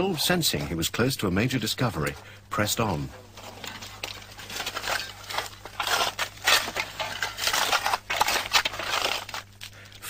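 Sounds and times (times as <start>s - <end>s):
steady hum: 0.0s - 10.0s
hand tools scraping into earth: 3.2s - 9.4s.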